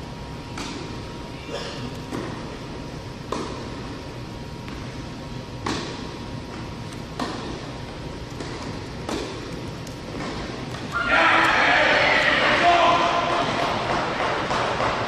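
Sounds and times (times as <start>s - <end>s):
tennis ball hit with rackets: 0.5s - 1.0s, 3.3s - 3.8s, 5.6s - 7.7s, 8.3s - 11.6s, 13.2s - 15.0s.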